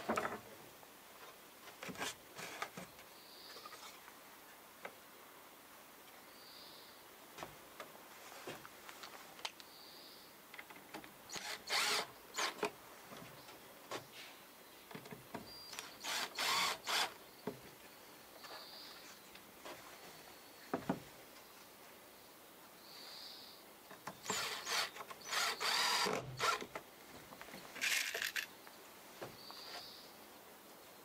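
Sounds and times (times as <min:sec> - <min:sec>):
cordless drill driving screws: 0:11.3 - 0:12.7, 0:15.8 - 0:17.1, 0:24.2 - 0:26.7, 0:27.8 - 0:28.4
handling clicks and knocks: 0:26.6 - 0:28.5.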